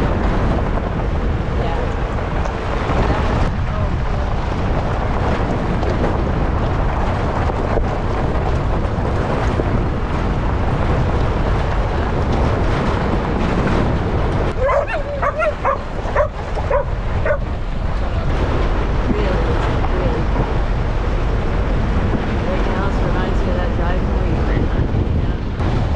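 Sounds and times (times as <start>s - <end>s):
loud rumbling noise: 0.0s - 25.9s
dog yipping and barking: 14.6s - 17.4s.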